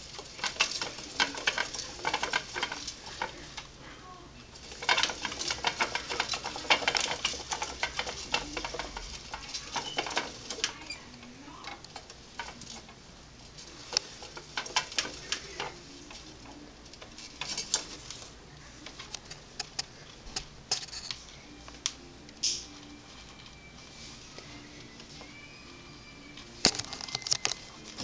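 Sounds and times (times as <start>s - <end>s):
plastic exercise wheel rattling: 0.0s - 3.8s, 4.5s - 19.9s, 26.6s - 28.0s.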